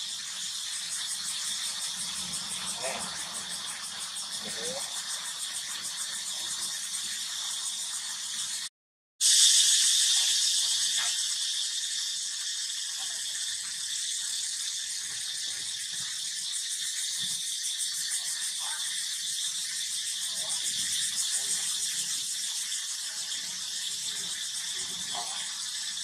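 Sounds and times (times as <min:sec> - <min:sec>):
insect chorus pulsing buzz: 0:00.0 - 0:26.0.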